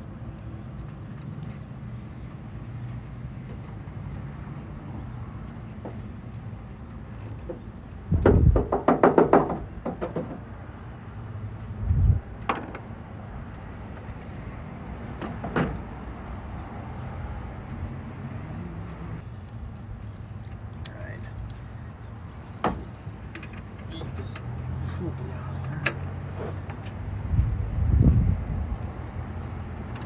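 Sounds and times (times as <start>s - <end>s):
metal clanks and knocks: 7.4s - 10.4s.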